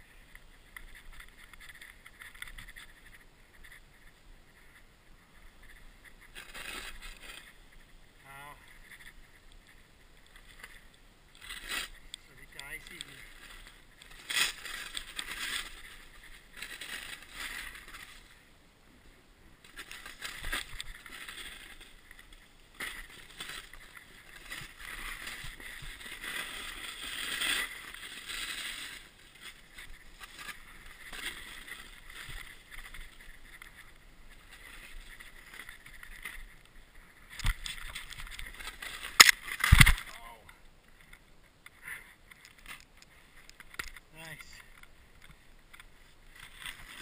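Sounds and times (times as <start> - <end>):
snowboard thumps: 39.1 - 40.2.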